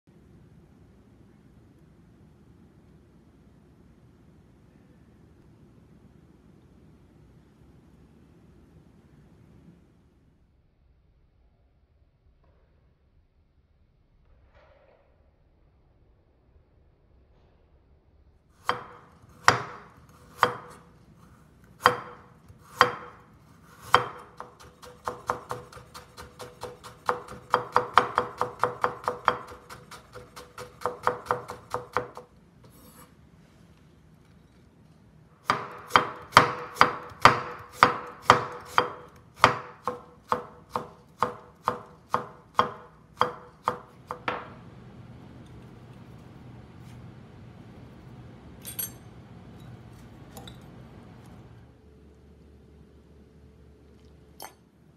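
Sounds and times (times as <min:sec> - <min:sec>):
knife striking wooden cutting board: 0:18.6 - 0:20.8, 0:21.8 - 0:23.2, 0:23.8 - 0:32.3, 0:35.5 - 0:44.5.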